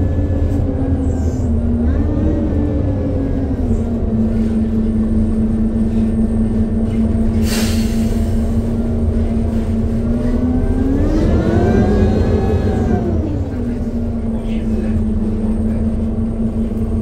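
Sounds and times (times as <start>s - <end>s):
low rumble of engine and road: 0.0s - 17.0s
short hiss of air: 7.4s - 8.4s.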